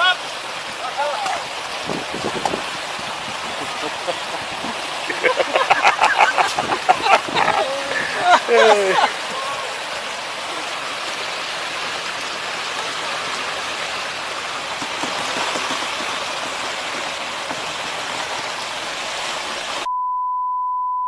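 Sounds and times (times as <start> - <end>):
slushy water and ice rushing: 0.0 - 19.9
censor bleep tone: 19.9 - 21.0.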